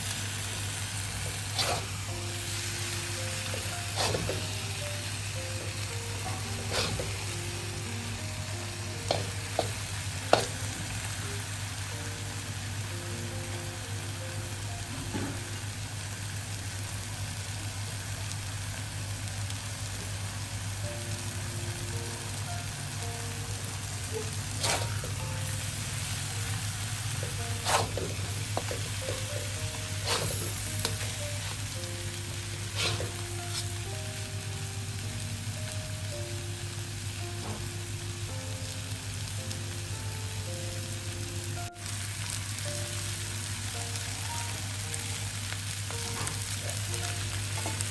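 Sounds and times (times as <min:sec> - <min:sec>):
food sizzling in a wok: 0:00.0 - 0:47.9
metal spatula scraping: 0:27.6 - 0:28.2, 0:32.6 - 0:33.7.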